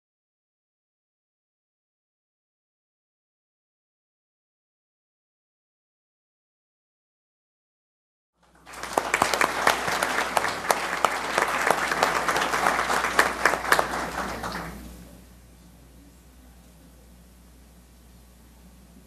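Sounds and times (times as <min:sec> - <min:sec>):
audience applauding: 0:08.4 - 0:15.0.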